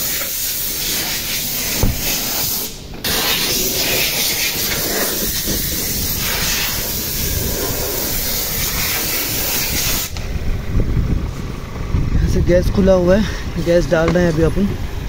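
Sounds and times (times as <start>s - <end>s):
loud steady hiss: 0.0s - 11.8s.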